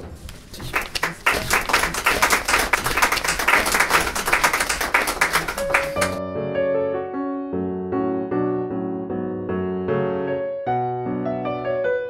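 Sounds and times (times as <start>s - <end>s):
small group clapping: 0.5s - 6.2s
solo piano music: 5.6s - 12.0s.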